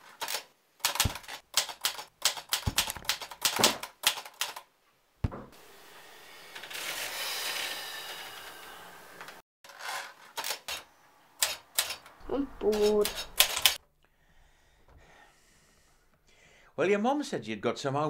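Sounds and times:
keys being typed: 0:00.2 - 0:04.6.

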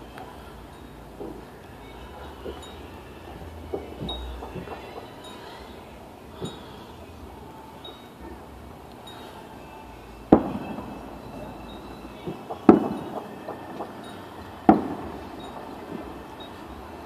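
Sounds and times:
faint distant gunshot pops: 0:10.3 - 0:11.0, 0:12.3 - 0:13.9
loud gunshots with echo: 0:12.2 - 0:16.2.

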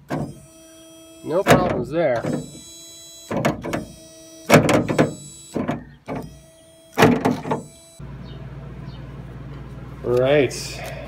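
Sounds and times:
power window motor whine: 0:00.0 - 0:08.4.

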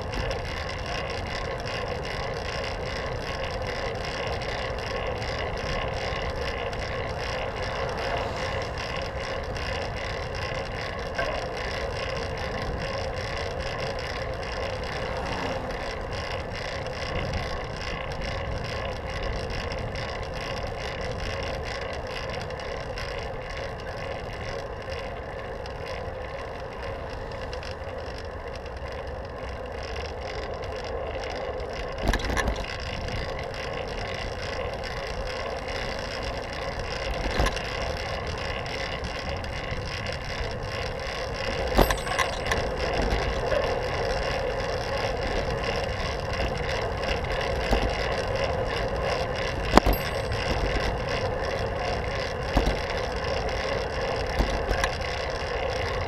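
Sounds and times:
bicycle tyres and drivetrain whirring: 0:00.0 - 0:56.0
wind: 0:00.0 - 0:56.0
bike knocking over bumps: 0:41.6 - 0:43.6, 0:49.6 - 0:50.7.

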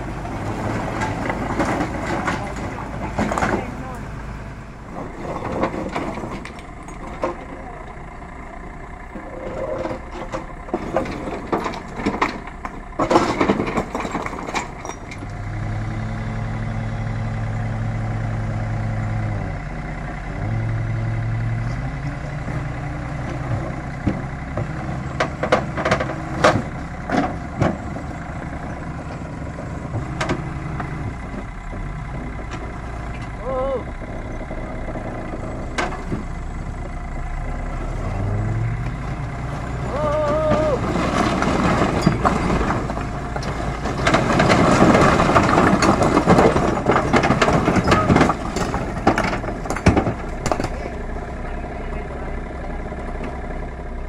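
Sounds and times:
excavator diesel engine working: 0:00.0 - 0:54.0
bucket clanking against metal: 0:40.5 - 0:51.0.

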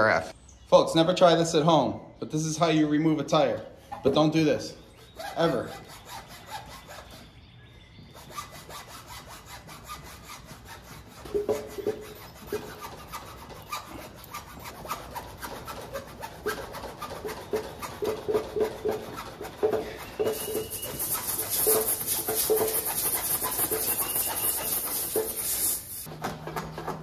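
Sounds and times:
saw cutting tire: 0:05.1 - 0:07.3, 0:08.1 - 0:27.0.

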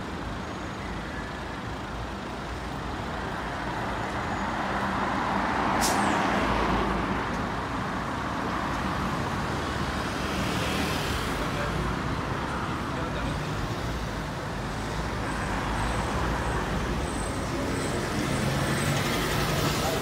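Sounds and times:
cars passing: 0:01.7 - 0:20.0.

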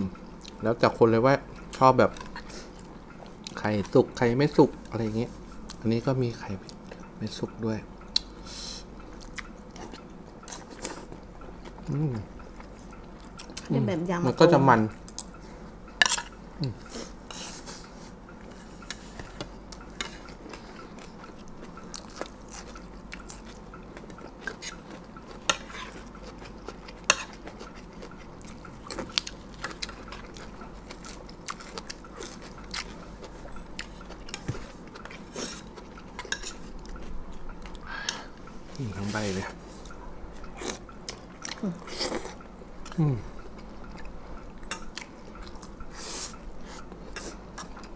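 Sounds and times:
chewing: 0:09.0 - 0:13.7, 0:16.0 - 0:47.9.

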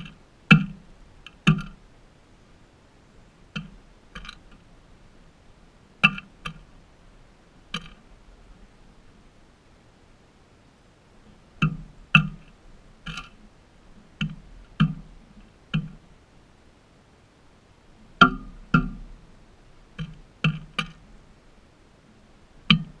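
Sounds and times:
bird pecking on plastic dish: 0:00.0 - 0:01.8, 0:06.0 - 0:06.7, 0:07.7 - 0:08.0, 0:14.0 - 0:16.0, 0:19.9 - 0:21.0.

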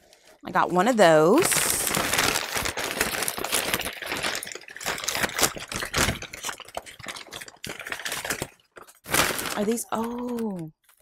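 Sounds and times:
packing paper rustling: 0:00.0 - 0:11.0.

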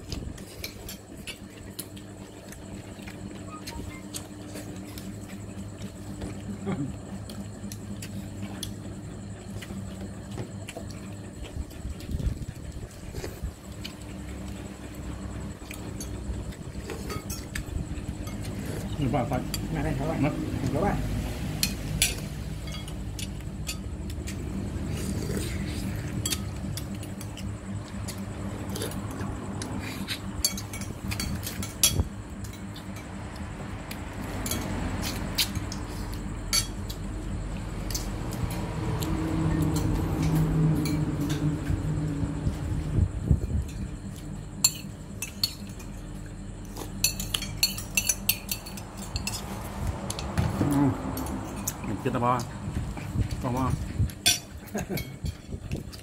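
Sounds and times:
low mechanical hum: 0:00.0 - 0:56.0
dishes and utensils clinking: 0:47.0 - 0:50.8.

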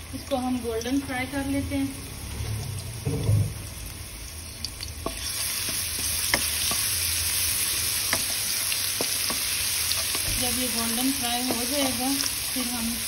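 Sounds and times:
garlic sizzling in oil: 0:00.0 - 0:13.0
low thump: 0:03.0 - 0:03.6.

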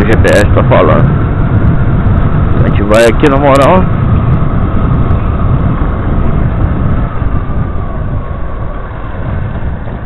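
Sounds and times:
motorcycle engine running: 0:00.0 - 0:10.0.

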